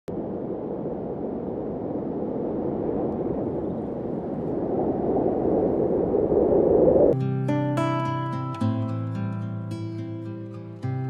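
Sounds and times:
wind on microphone: 0.1s - 7.2s.

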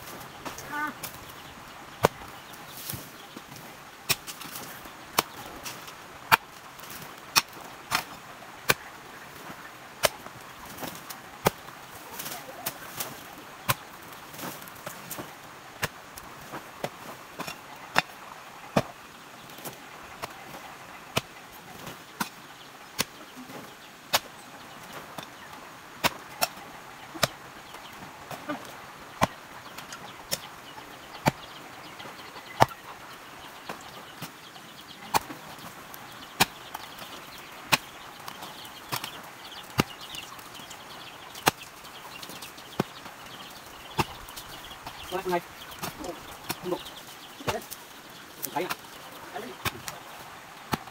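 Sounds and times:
hoe chopping into clay soil: 41.4s - 41.6s.

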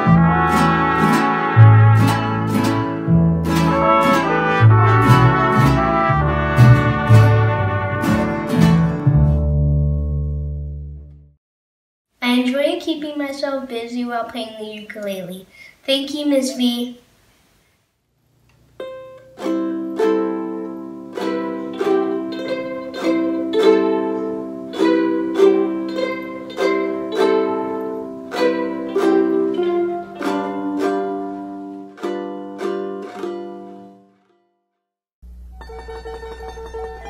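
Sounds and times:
ukulele chords strummed: 0.0s - 11.2s, 18.7s - 34.5s, 35.2s - 37.0s.

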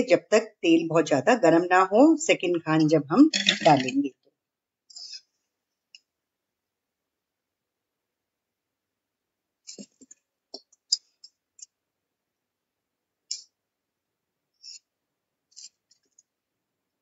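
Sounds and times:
skimmer clinking against metal pan: 3.3s - 4.0s.

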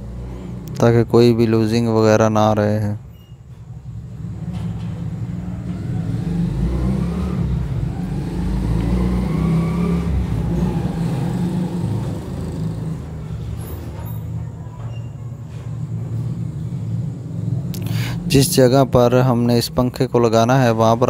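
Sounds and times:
engine running and revving: 0.0s - 0.8s, 4.1s - 14.1s.

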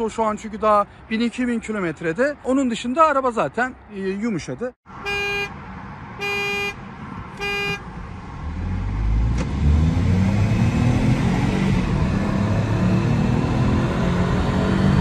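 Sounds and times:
car accelerating hard: 8.4s - 15.0s.

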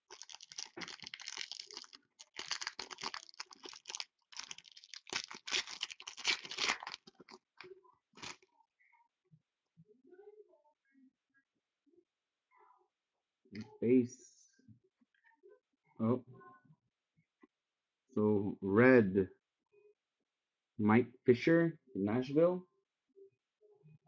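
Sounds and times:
foil pack tearing and crinkling: 0.0s - 7.6s, 8.2s - 8.4s.

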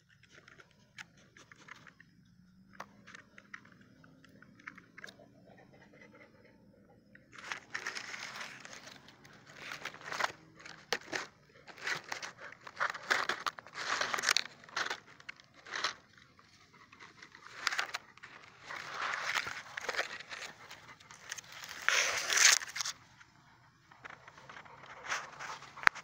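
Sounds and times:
rustling in dry leaves: 7.4s - 23.0s.

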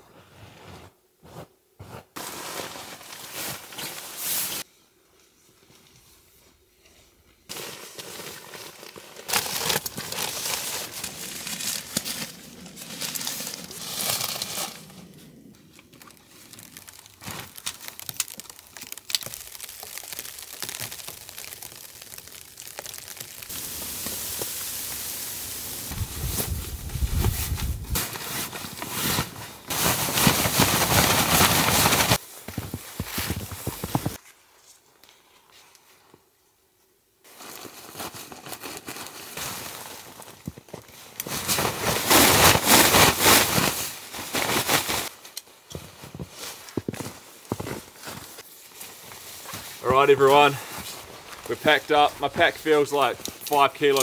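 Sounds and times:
nylon fabric rustling: 16.6s - 34.2s, 41.3s - 45.2s.

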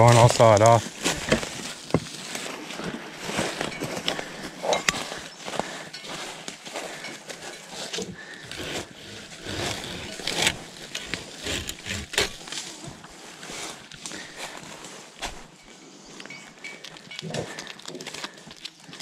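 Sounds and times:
pruning saw rasping: 8.2s - 12.6s.

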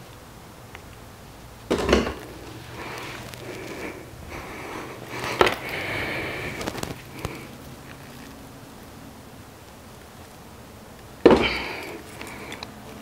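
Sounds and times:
sharp knocks: 1.7s - 2.2s, 11.2s - 11.7s
man breathing hard and straining: 2.4s - 7.6s, 11.3s - 12.8s
small clicks: 11.8s - 13.0s.

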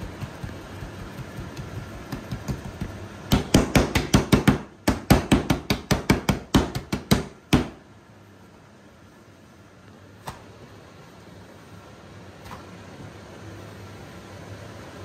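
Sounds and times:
hands slapping pizza dough: 0.0s - 7.8s.

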